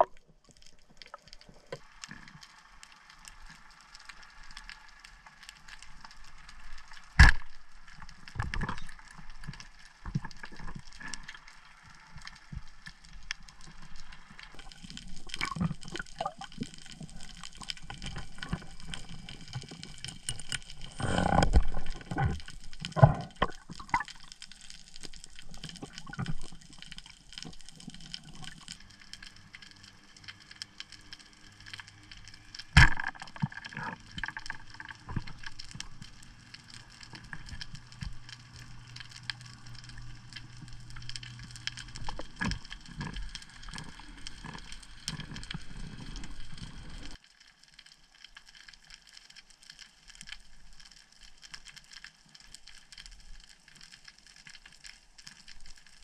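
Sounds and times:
water gurgling: 0.0s - 3.2s, 5.6s - 47.2s
underwater knocks and clicks: 7.2s - 7.6s, 8.3s - 11.3s, 14.6s - 24.4s, 32.8s - 36.1s
underwater hiss: 20.7s - 22.2s.

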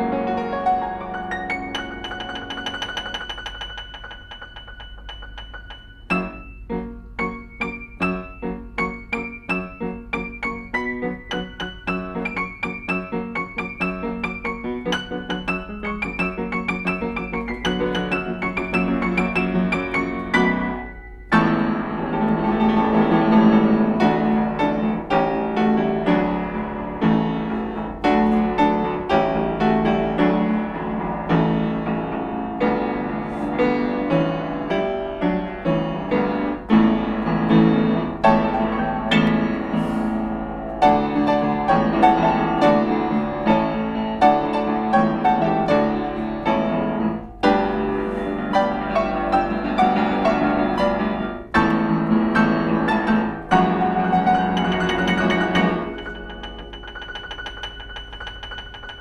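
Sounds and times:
solo piano: 0.0s - 59.0s.

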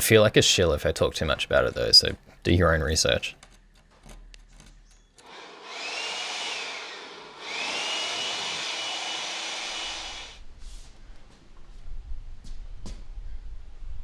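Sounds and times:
electric motor whining: 5.2s - 10.4s.

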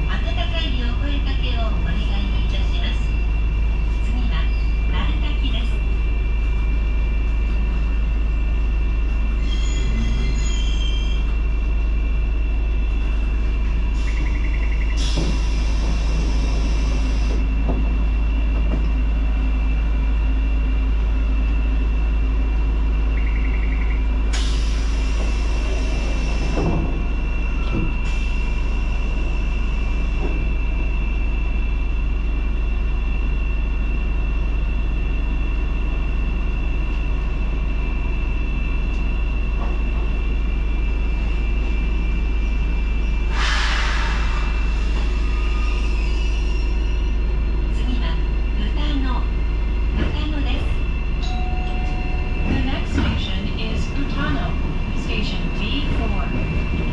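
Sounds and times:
railcar rumble with high whine: 0.0s - 56.9s
short hissing noise: 43.3s - 44.7s.

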